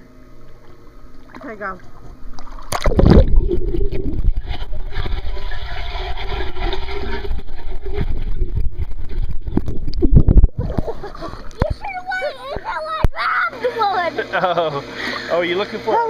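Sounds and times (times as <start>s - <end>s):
muffled underwater rush and bubbling: 1.1s - 13.2s
splash into water: 2.4s - 4.3s.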